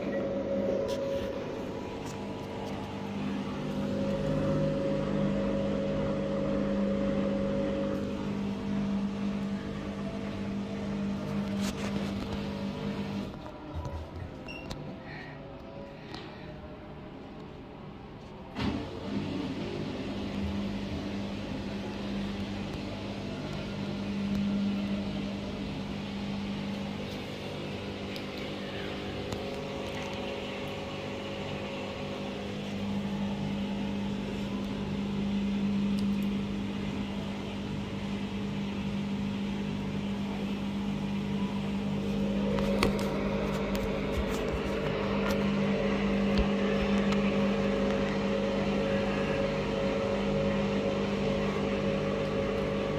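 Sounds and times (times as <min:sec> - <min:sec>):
washing machine drum spinning: 0:18.5 - 0:52.9.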